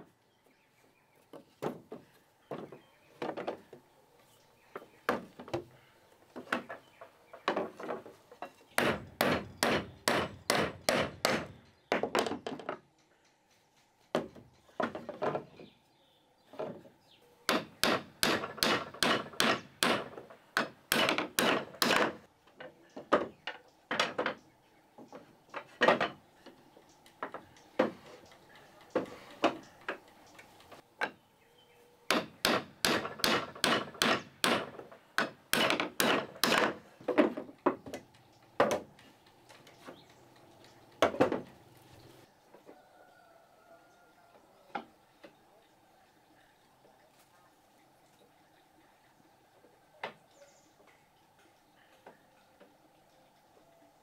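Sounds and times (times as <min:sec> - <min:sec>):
hammering on wood: 0:07.4 - 0:12.8, 0:14.1 - 0:15.6, 0:17.5 - 0:22.3, 0:32.1 - 0:38.0, 0:38.6 - 0:38.9.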